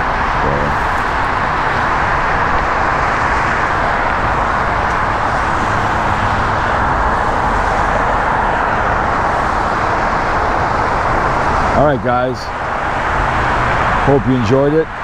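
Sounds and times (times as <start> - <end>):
highway traffic rumble: 0.0 - 15.0.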